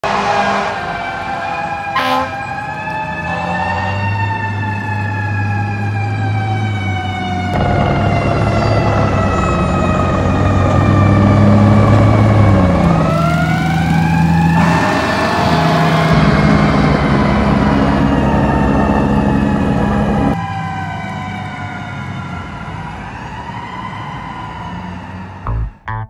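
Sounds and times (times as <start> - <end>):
fire engine siren wailing: 0.0 - 25.9.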